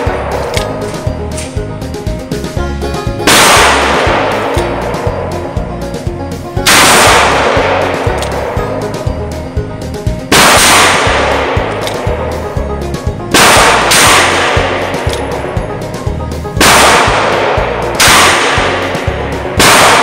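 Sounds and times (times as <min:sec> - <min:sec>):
background music with steady beat: 0:00.0 - 0:20.0
revolver gunshots ringing: 0:03.2 - 0:05.2, 0:06.6 - 0:08.8, 0:10.3 - 0:12.3, 0:13.3 - 0:15.4, 0:16.5 - 0:20.0.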